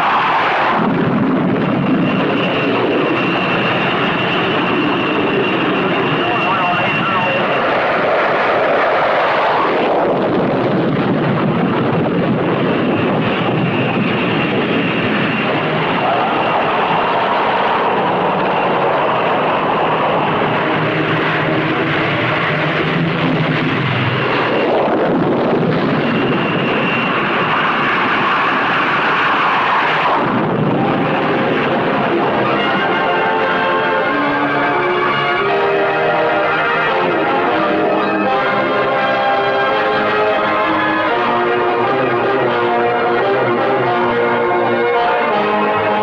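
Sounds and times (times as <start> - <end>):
faint high whine: 0.0 - 11.8
jet engines roaring: 0.0 - 46.0.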